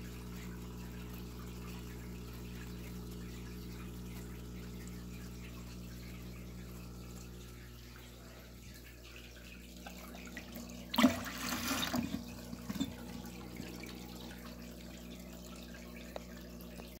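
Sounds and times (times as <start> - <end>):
water drips: 0.0 - 17.0
water splashing into plastic bucket: 9.8 - 14.5.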